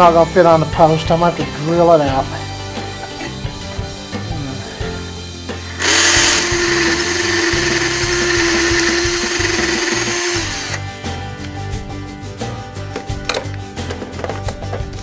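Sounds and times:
electric drill running: 5.6s - 10.8s.

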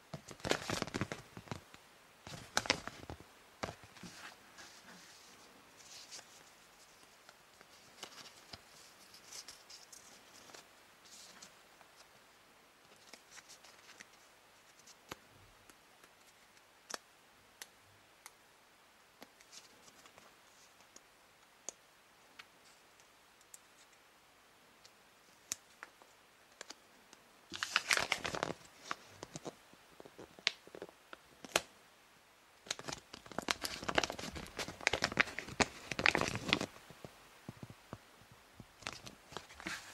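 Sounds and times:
soft rustling: 0.1s - 12.2s, 32.9s - 39.9s.

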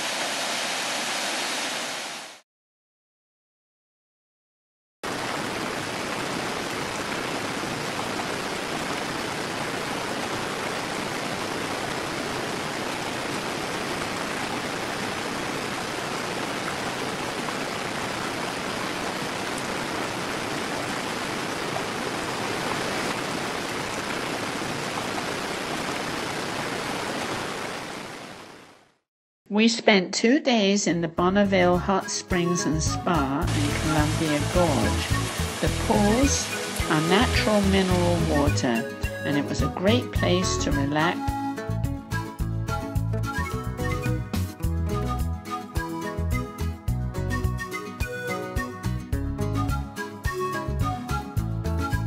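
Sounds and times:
waterfall rushing: 0.0s - 2.4s, 5.0s - 28.6s, 33.4s - 39.3s.

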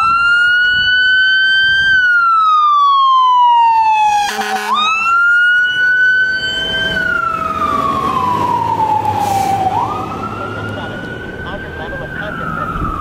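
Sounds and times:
fire engine siren wailing: 0.0s - 13.0s
horn blast: 4.1s - 5.1s.

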